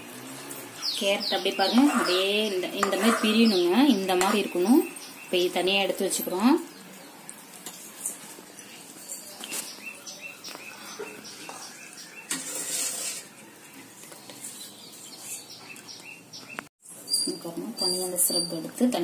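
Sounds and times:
spoon stirring in a pan: 1.4 - 4.6
thick syrup boiling and popping: 5.9 - 9.8, 10.4 - 16.7.

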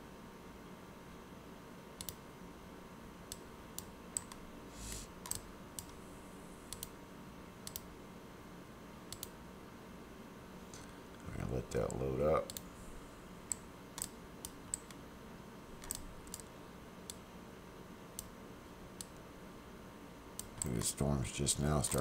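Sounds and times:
faint steady hum: 0.0 - 22.0
computer mouse clicking: 2.0 - 2.2, 3.3 - 6.0, 6.7 - 7.0, 7.6 - 7.9, 9.1 - 9.4, 12.5 - 12.7, 13.5 - 15.0, 15.8 - 16.5, 21.8 - 22.0.

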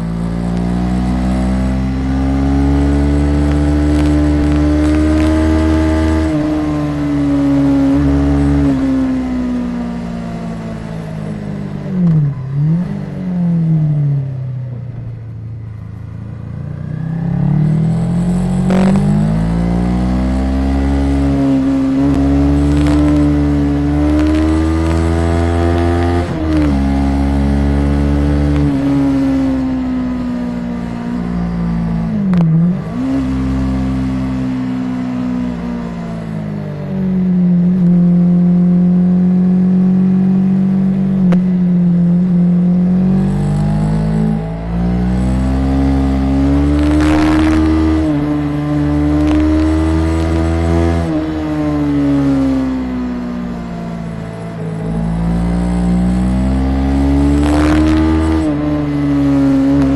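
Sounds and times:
motorcycle engine revving: 0.0 - 59.9
recorder crackles: 3.4 - 5.4, 22.5 - 26.0, 46.6 - 51.2.

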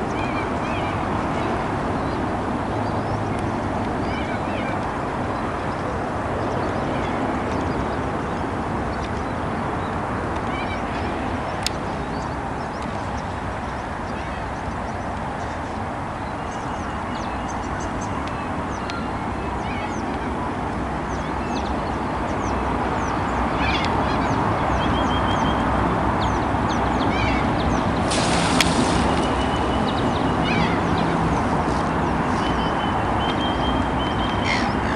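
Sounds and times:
steady rushing noise: 25.7 - 34.9
brief loud hiss: 28.0 - 29.6.

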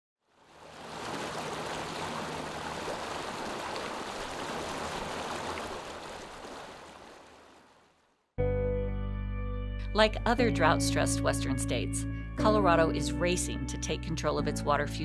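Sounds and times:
river rapids rushing: 0.7 - 6.2.

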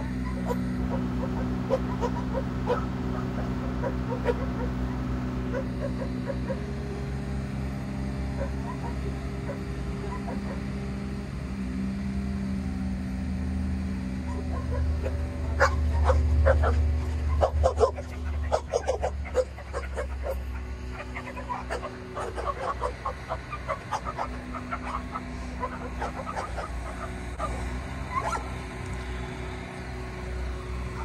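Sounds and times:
dog barking: 0.0 - 4.8, 5.5 - 6.7, 8.4 - 10.7, 14.2 - 28.5
diesel engine drone: 0.0 - 31.0.

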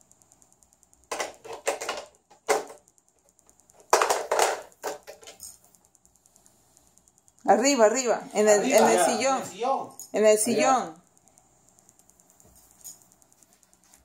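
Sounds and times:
plastic blocks clattering: 3.8 - 5.4.

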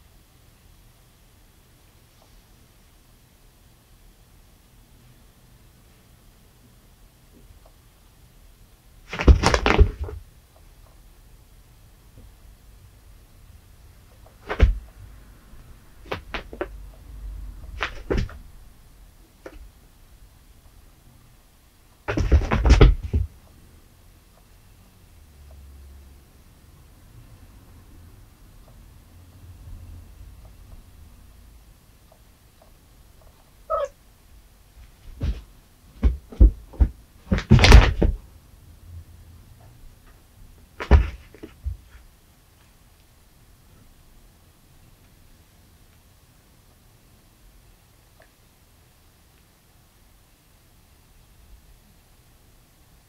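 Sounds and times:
cat paws thumping on carpet: 17.7 - 18.4, 22.1 - 23.4, 34.8 - 38.2, 40.8 - 42.0
cat chirp: 33.7 - 34.0.

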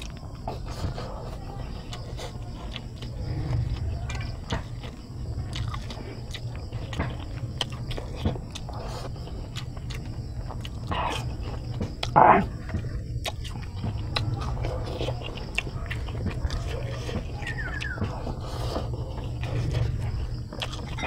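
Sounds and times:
person chewing food: 0.0 - 21.0
steady low rumble: 0.0 - 21.0
mouth smacks and clicks: 5.5 - 12.2.

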